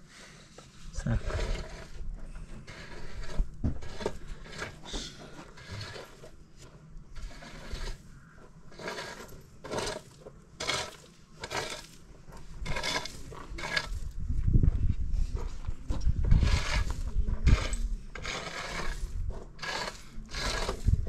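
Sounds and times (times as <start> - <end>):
wet mortar scraping on stone: 0.5 - 14.2, 15.4 - 21.0.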